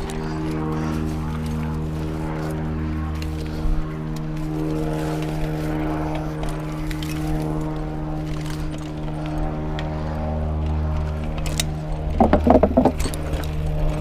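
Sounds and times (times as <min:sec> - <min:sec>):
droning hum: 0:00.0 - 0:14.0
bike clicks and knocks: 0:10.6 - 0:14.0.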